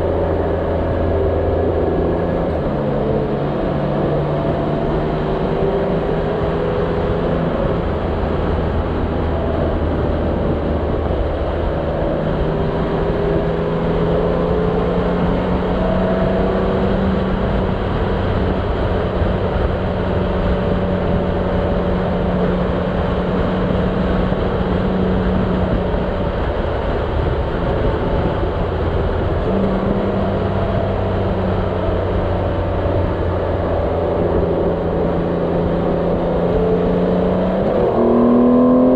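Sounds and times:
wind rush: 0:00.0 - 0:38.9.

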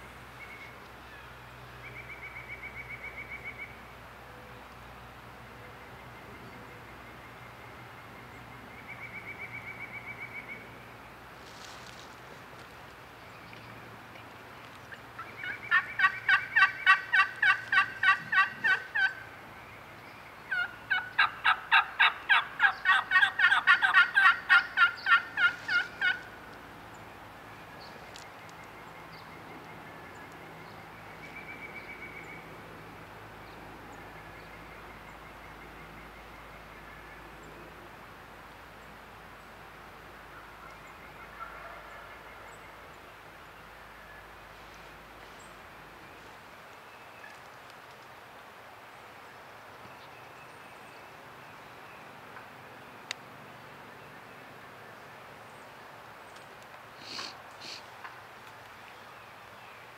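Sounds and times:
faint scattered turkey calls: 0:13.5 - 0:19.3, 0:20.0 - 0:26.4, 0:40.2 - 0:48.0, 0:56.3 - 0:59.6
wild turkey yelping: 0:15.2 - 0:19.2, 0:20.5 - 0:26.3, 0:40.3 - 0:42.5.

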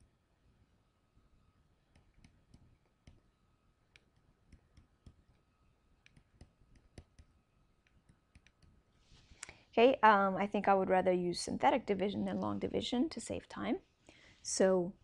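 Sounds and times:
stylus tapping tablet screen: 0:01.8 - 0:09.0.

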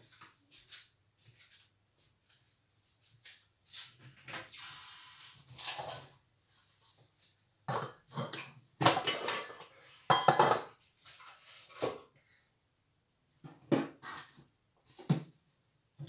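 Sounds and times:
pots and dishes clanking: 0:07.7 - 0:10.7.

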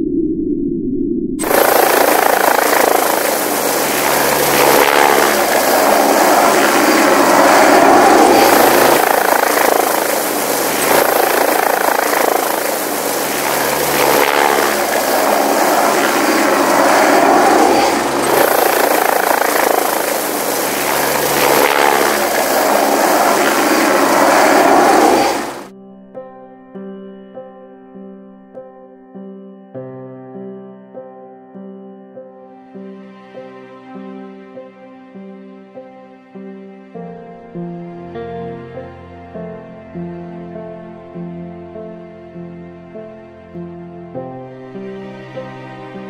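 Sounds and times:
helicopter rotor and turbine: 0:01.4 - 0:25.7.

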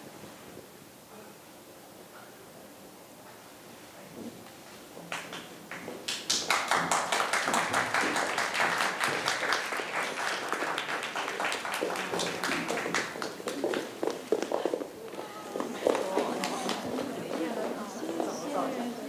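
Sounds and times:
audience applauding: 0:05.1 - 0:18.4.

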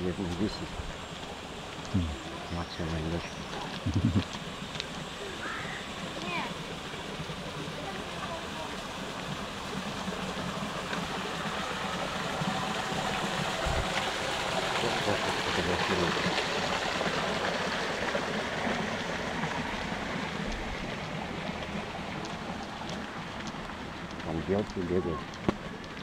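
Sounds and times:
steady rushing noise: 0:09.4 - 0:26.0.

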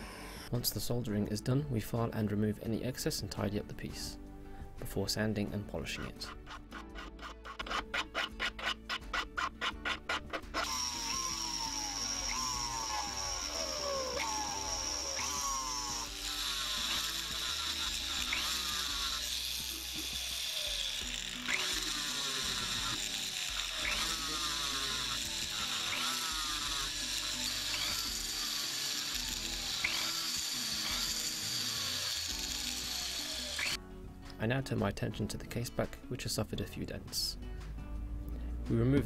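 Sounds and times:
rotary tool whining: 0:00.0 - 0:00.5, 0:06.3 - 0:33.8
background music: 0:00.0 - 0:39.0.

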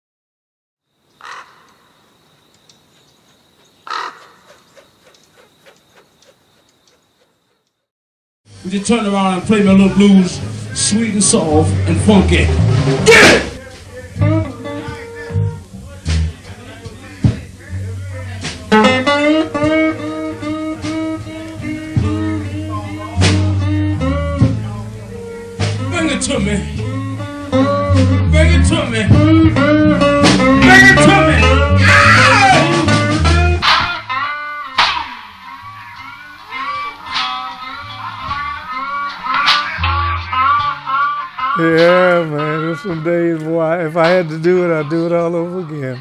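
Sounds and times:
bird calling: 0:01.0 - 0:07.8
electric blues guitar: 0:09.4 - 0:46.0
low bass line: 0:09.5 - 0:16.5, 0:17.3 - 0:33.7.

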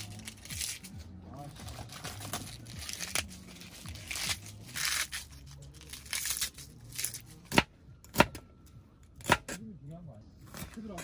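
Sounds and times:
plastic packaging rustling and tearing: 0:00.0 - 0:07.2.

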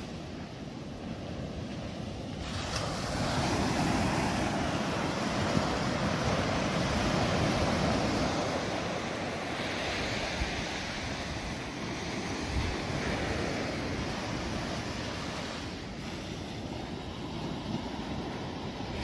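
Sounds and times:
ocean surf breaking: 0:00.0 - 0:19.0.

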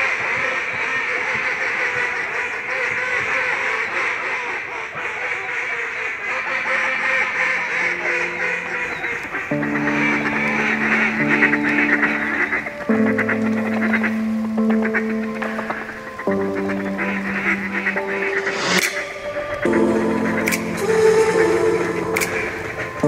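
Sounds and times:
ducks quacking: 0:00.0 - 0:23.0
slow held music chords: 0:07.4 - 0:23.0.

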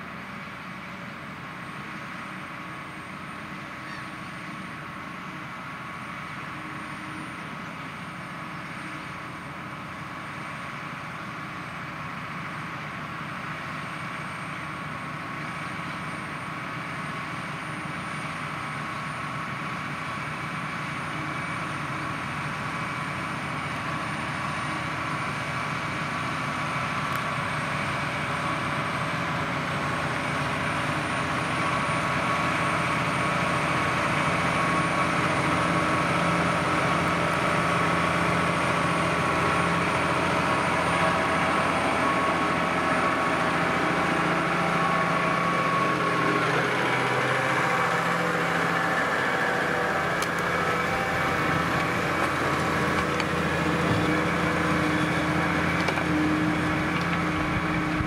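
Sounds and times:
tractor diesel engine under load: 0:00.0 - 0:58.0
steady whine: 0:29.0 - 0:58.0.

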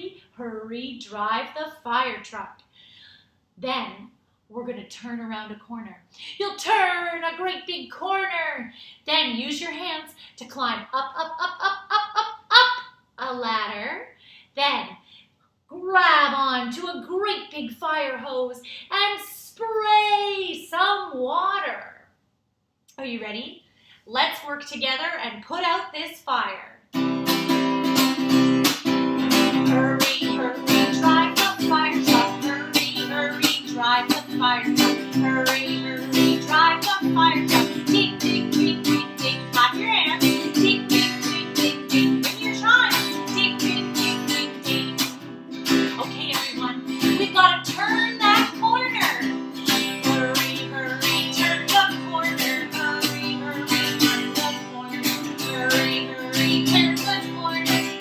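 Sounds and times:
strummed acoustic guitar: 0:27.0 - 0:58.0
woman singing: 0:29.2 - 0:58.0.

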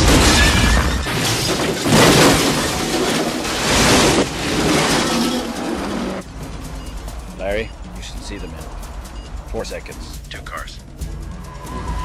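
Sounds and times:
wreck crashing down: 0:00.0 - 0:06.2
debris clattering: 0:00.0 - 0:09.2.

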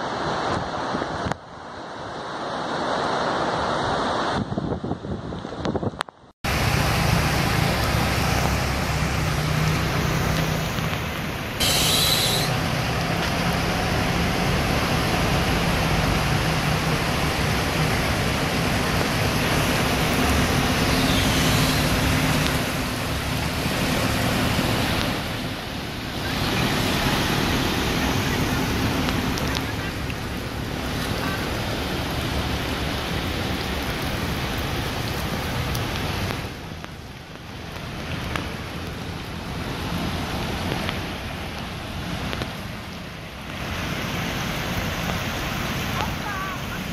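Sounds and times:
water and rain hissing: 0:00.0 - 0:46.9
vehicle engines running: 0:06.5 - 0:46.9
brief sharp hiss: 0:11.6 - 0:12.5.

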